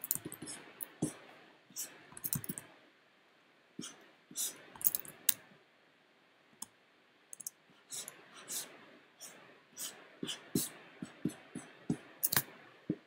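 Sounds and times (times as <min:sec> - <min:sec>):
mouse and keyboard clicks: 0:02.2 - 0:02.6, 0:12.2 - 0:12.5.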